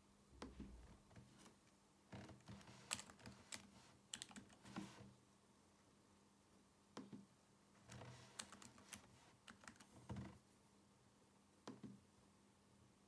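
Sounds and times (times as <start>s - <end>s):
laptop keyboard typing: 2.3s - 5.0s, 7.9s - 10.3s.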